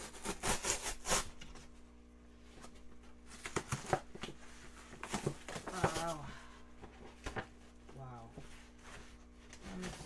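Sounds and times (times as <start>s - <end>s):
packing paper rustling and crinkling: 3.3s - 10.0s.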